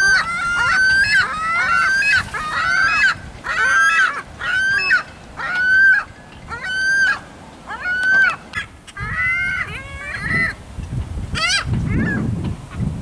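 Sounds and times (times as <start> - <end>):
gull squawking: 0.0 - 10.6, 11.4 - 12.2.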